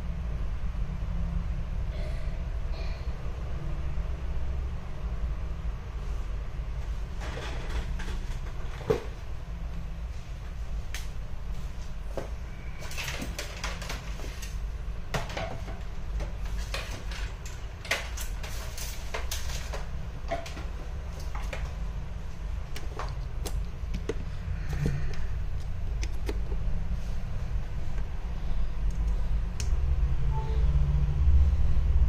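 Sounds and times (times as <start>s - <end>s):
low hum: 20.0s - 32.0s.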